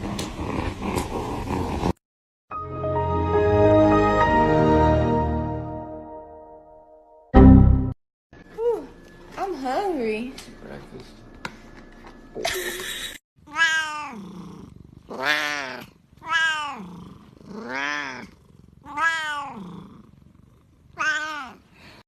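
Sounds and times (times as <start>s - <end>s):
cat meowing: 13.5s - 14.2s, 15.1s - 16.9s, 17.6s - 19.6s, 21.0s - 21.6s.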